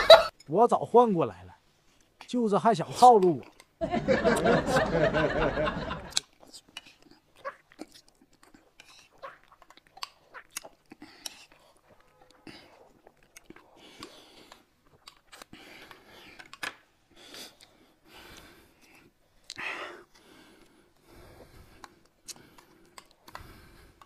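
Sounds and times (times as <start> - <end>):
breaths: 10.9 - 12.9, 13.6 - 24.0.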